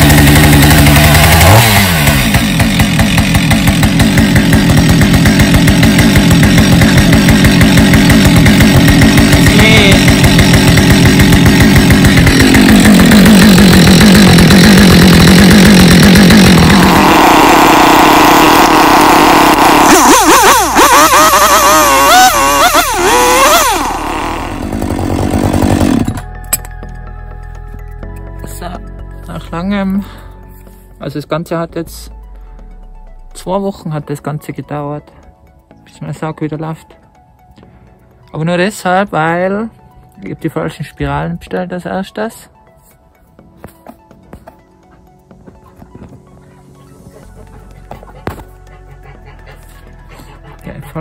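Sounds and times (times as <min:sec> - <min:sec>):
chainsaw running: 0:00.0 - 0:26.9, 0:47.3 - 0:51.0.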